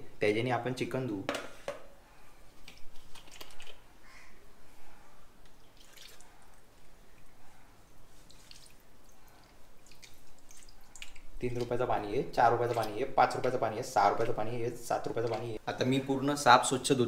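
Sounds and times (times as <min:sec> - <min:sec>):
water trickling and dripping: 0:05.4 - 0:07.4, 0:08.0 - 0:15.6.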